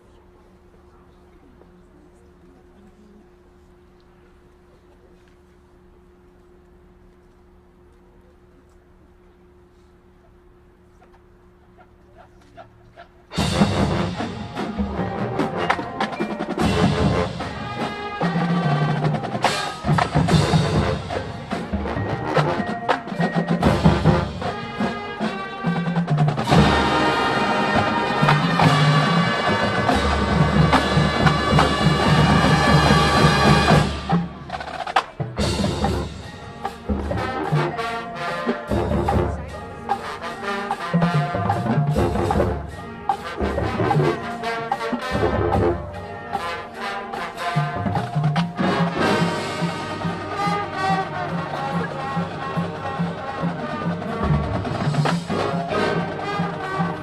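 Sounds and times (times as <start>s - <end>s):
marching band playing: 12.2s - 57.0s
drum and mallet strikes: 41.0s - 50.8s.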